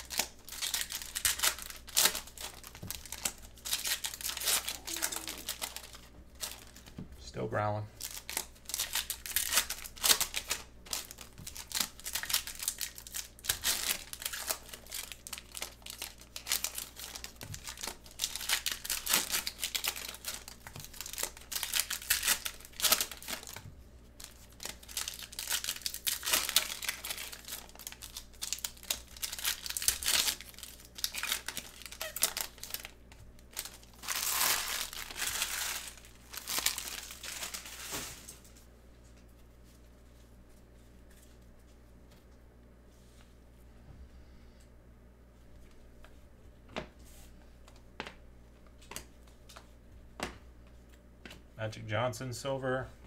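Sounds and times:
foil wrappers crinkling and tearing: 0.0 - 7.4, 8.0 - 38.6.

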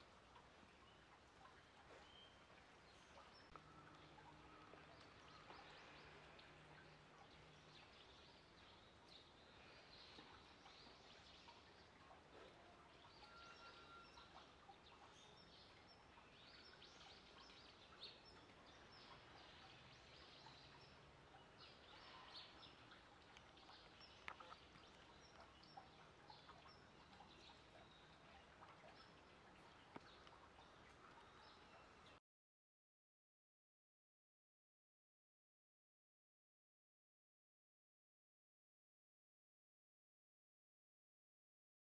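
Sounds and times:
birds chirping: 0.3 - 32.2.

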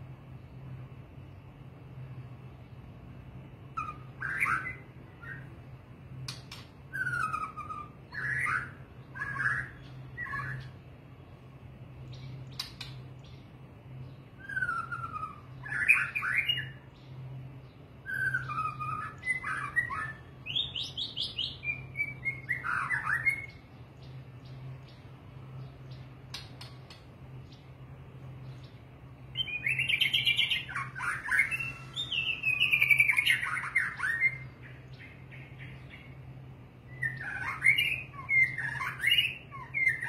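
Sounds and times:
steady low hum: 0.0 - 40.0
bird singing whistles: 3.8 - 5.6, 6.3 - 10.8, 14.0 - 17.0, 18.0 - 23.7, 29.3 - 36.2, 36.8 - 40.0.

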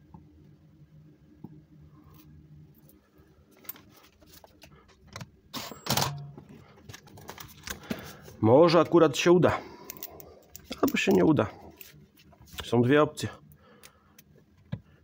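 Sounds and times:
metal tools clicking and clinking: 9.8 - 11.9.

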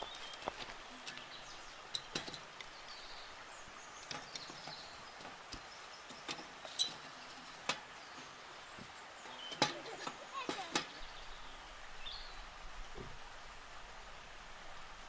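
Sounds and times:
river rushing: 0.0 - 15.0
sharp clicks and knocks: 1.9 - 2.7, 9.4 - 11.0.

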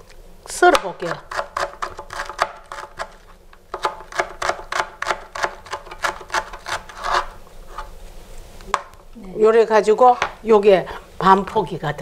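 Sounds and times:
knife slicing cabbage: 0.7 - 7.9.

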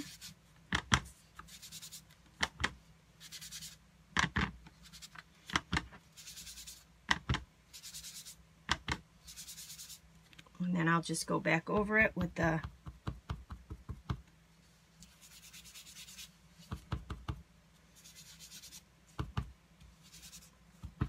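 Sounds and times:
sponge rubbing on cardstock: 0.0 - 0.4, 1.1 - 2.1, 3.2 - 3.8, 4.8 - 5.2, 6.1 - 6.9, 7.7 - 8.4, 9.2 - 10.0, 15.0 - 16.8, 17.8 - 19.3, 20.0 - 21.0.

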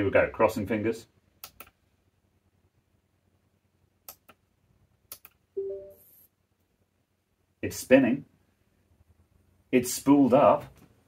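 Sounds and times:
faint clicks: 1.4 - 1.8, 5.1 - 5.4.

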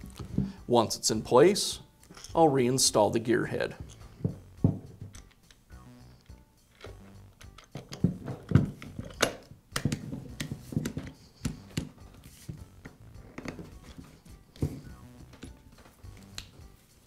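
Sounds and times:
handling clicks and knocks: 3.8 - 5.6, 6.7 - 16.5.

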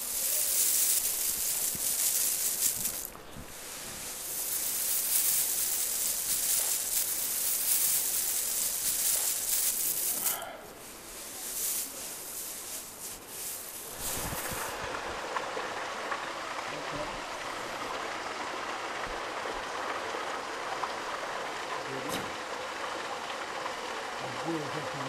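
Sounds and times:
grain trickling onto cloth: 0.0 - 15.2.

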